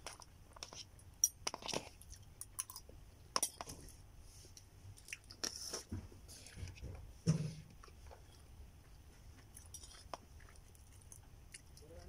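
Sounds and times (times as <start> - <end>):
chewing: 4.9 - 6.8, 7.8 - 12.0.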